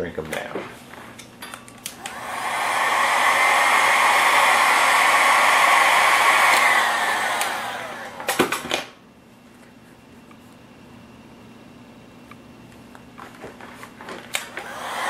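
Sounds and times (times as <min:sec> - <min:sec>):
fan winding down: 0:01.8 - 0:08.7, 0:14.3 - 0:15.0
heat gun blowing air: 0:01.9 - 0:08.5, 0:14.3 - 0:15.0.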